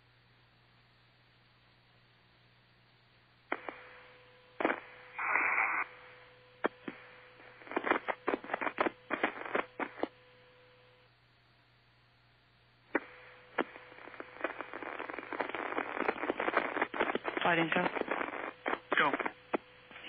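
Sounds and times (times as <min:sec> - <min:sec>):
low radio hum: 0:00.8 - 0:20.0
burst of static: 0:03.5 - 0:10.2, 0:12.9 - 0:20.0.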